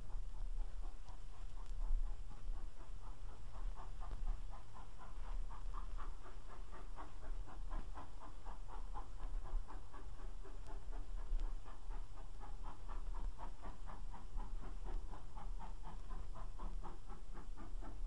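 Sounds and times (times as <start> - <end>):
steam locomotive exhaust beating: 0.0 - 18.0.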